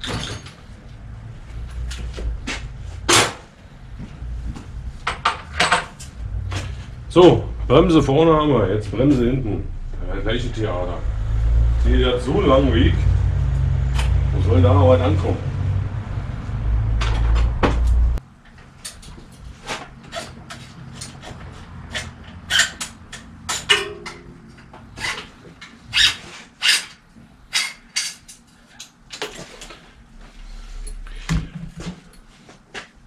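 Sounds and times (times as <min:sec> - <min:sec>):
tools clicking and knocking on bicycle: 0:05.0 - 0:06.7, 0:17.0 - 0:29.7
loud low hum: 0:06.1 - 0:18.2.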